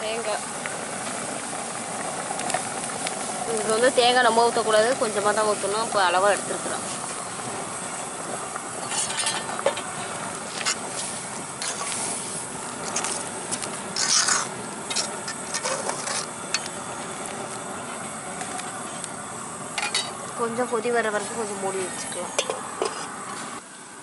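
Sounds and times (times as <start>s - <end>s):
simmering hiss: 0.0s - 24.0s
ladle scraping metal pot: 8.8s - 9.9s, 10.6s - 12.1s, 13.9s - 16.7s, 22.1s - 23.2s.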